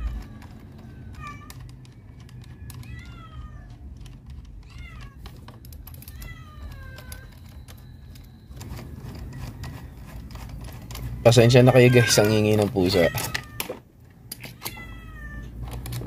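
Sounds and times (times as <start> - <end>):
cat meowing: 0.0 - 1.8, 2.4 - 3.9, 4.6 - 5.2, 6.0 - 7.4, 11.3 - 13.8, 14.4 - 15.6.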